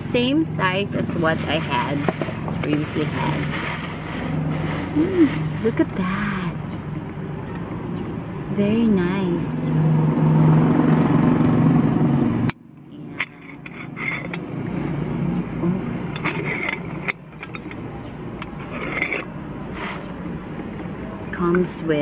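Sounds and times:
low motor hum: 0.0 - 21.6
metal clicks and scrapes: 13.2 - 14.4, 16.1 - 17.8, 18.4 - 20.2.

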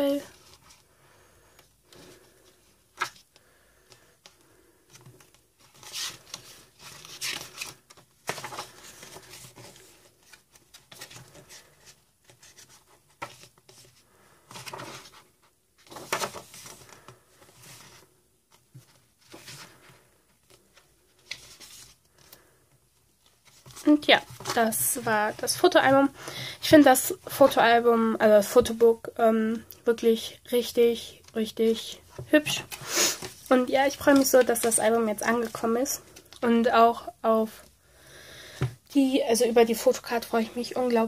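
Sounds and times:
pages being turned: 2.9 - 3.3, 4.9 - 13.9, 14.5 - 19.8, 20.4 - 22.4.

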